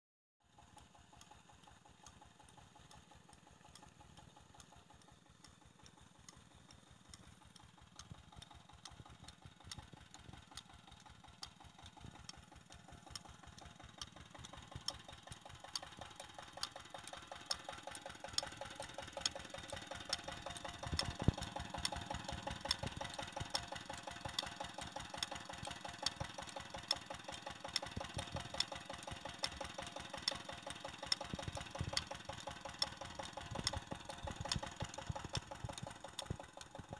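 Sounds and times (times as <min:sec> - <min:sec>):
diesel engine knocking: 0:00.5 - 0:36.9.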